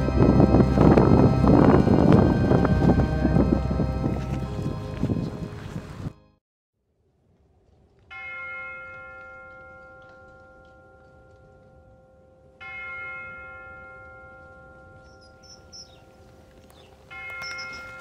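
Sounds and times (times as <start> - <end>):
bell ringing: 17.1 - 18.0.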